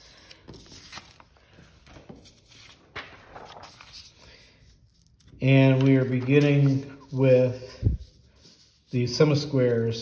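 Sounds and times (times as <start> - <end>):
paper rustling: 0.0 - 9.7.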